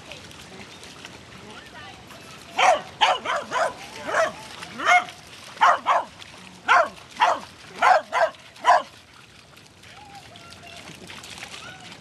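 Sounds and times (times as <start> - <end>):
dog barking: 2.6 - 6.1, 6.7 - 8.9.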